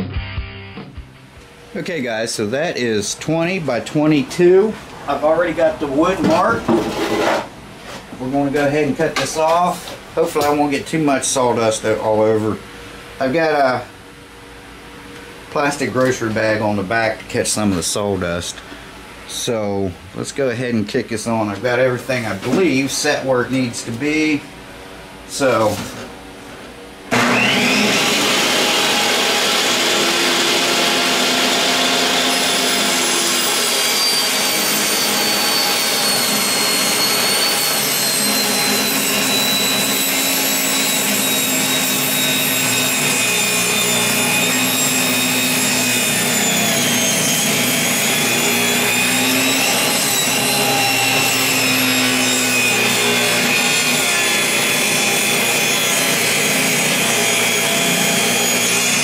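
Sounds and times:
table saw motor whining: 27.1s - 59.0s.

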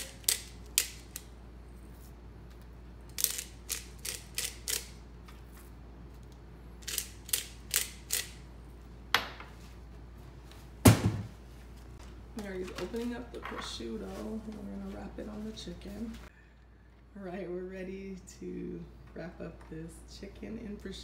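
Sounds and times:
pepper mill ratcheting clicks: 0.0s - 1.3s, 3.1s - 5.0s, 6.8s - 8.4s.

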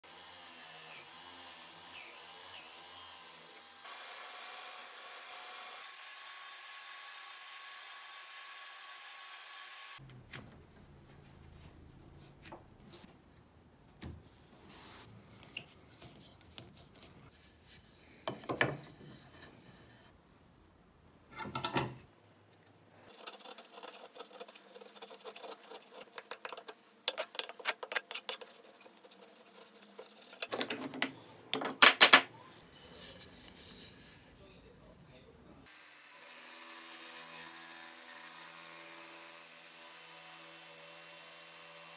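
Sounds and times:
wood knocking and sliding on wood: 18.2s - 19.8s, 30.4s - 32.3s
wood scraping: 23.1s - 34.4s.

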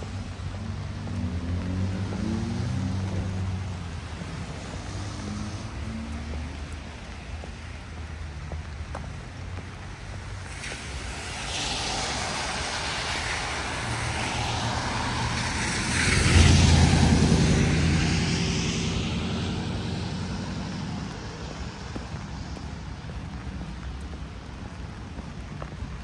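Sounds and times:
jet aircraft passing overhead: 10.5s - 21.9s.

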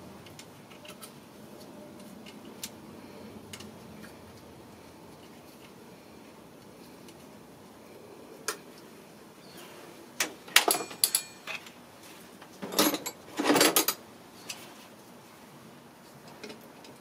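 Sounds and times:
metal tools clinking on metal: 10.5s - 11.8s, 12.6s - 14.0s.

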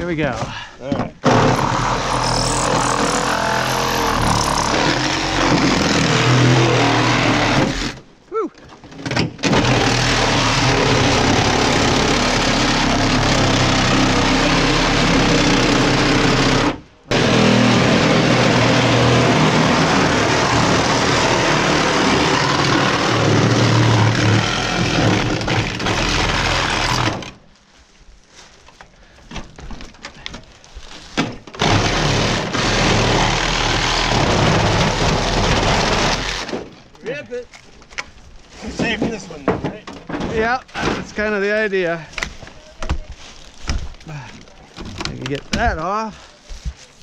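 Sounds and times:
power tool cutting sheet metal: 1.3s - 8.0s, 9.4s - 27.2s, 31.6s - 36.6s
metal clanks and knocks: 38.6s - 41.2s.

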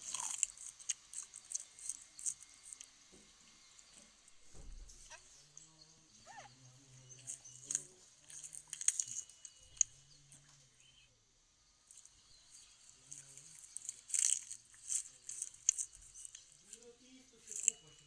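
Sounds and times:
crunching and chewing bamboo: 0.0s - 3.0s, 7.0s - 11.0s, 11.9s - 18.0s.

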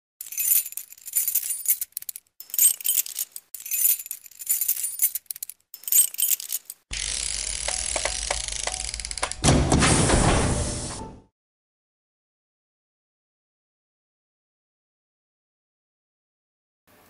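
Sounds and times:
metallic jingling and shimmering: 0.2s - 6.8s.

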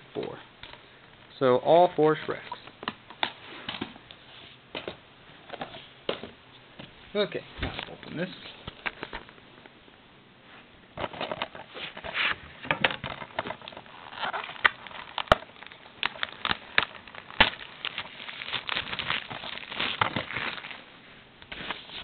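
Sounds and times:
plastic wrapping crinkling: 11.1s - 22.0s.

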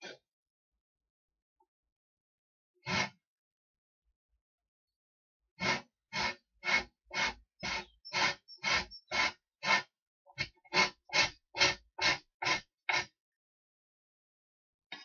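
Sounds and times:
hand tool scraping strokes: 5.6s - 13.1s.

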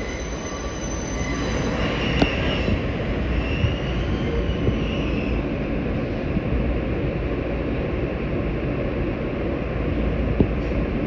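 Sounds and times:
high wheel squeal: 0.0s - 5.4s
wheels rumbling on rail: 0.0s - 11.0s.

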